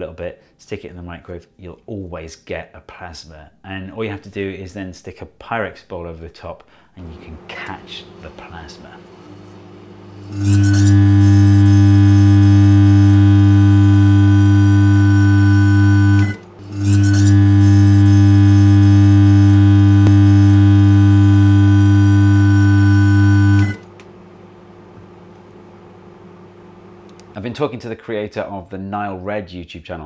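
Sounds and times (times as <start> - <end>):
electrical buzz of plasma in microwave: 7.0 - 27.4.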